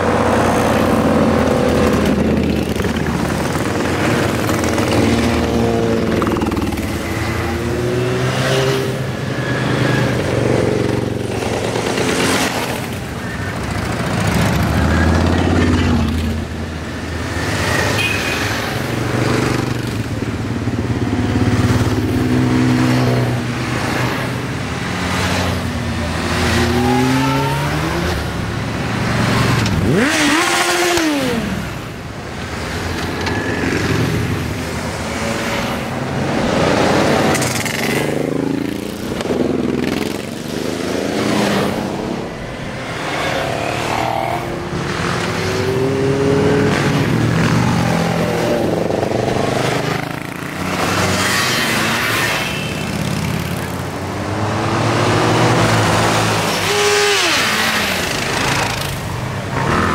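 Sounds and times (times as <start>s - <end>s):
motorcycles passing by: 0.0s - 59.9s
motorcycle engine revving: 19.2s - 31.8s, 36.3s - 59.9s.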